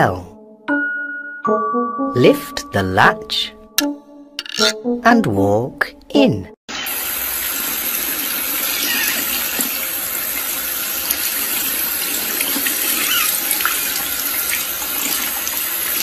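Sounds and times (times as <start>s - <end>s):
tap water running into sink: 6.9s - 16.0s.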